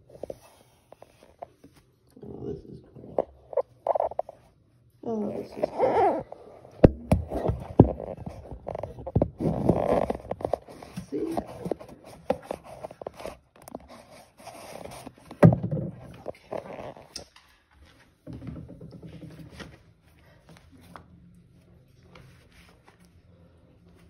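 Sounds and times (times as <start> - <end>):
rubbing and scraping: 5.4 - 17.1.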